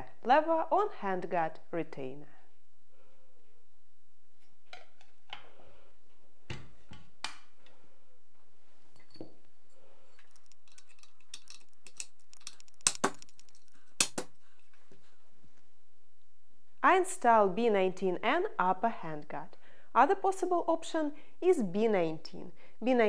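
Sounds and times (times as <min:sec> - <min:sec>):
metal gun parts clicking: 0:10.2 - 0:14.2.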